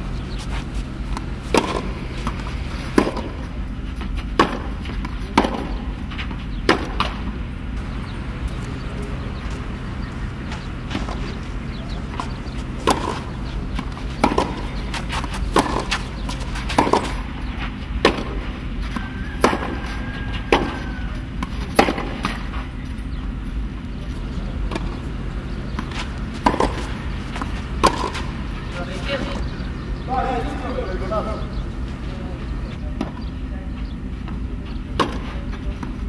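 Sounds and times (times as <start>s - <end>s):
steady low hum: 0.0s - 36.0s
tennis ball hit by rackets: 1.0s - 7.9s, 10.9s - 22.6s, 24.6s - 25.0s, 25.6s - 28.7s, 34.2s - 36.0s.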